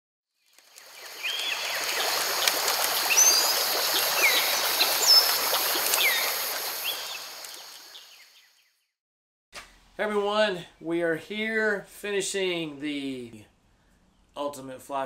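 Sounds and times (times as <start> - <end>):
stream water rushing: 0.7 - 8.1
birds chirping: 0.8 - 8.8.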